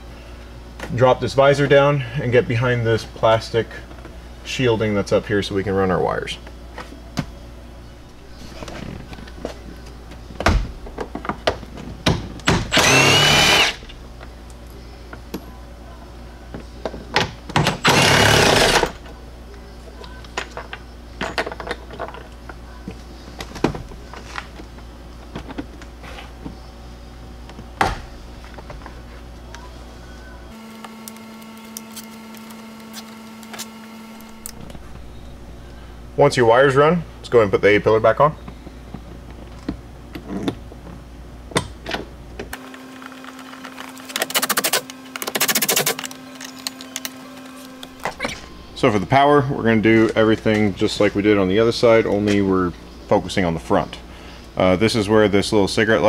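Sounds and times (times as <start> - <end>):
cordless power driver ticking: 12.7 - 13.9, 17.8 - 18.8.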